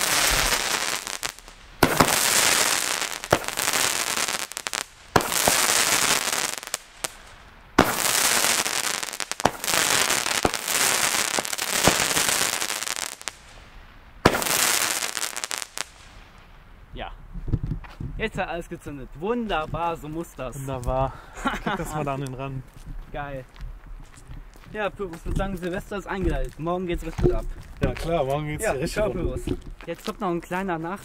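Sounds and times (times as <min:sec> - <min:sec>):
firework hissing: 0:00.0 - 0:16.3
firework shot cracks: 0:00.0 - 0:16.4.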